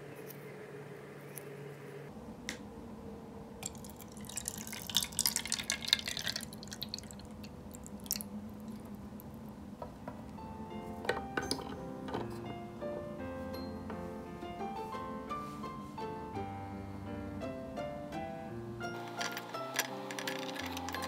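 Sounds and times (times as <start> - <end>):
water pouring and splashing: 3.6 - 8.9.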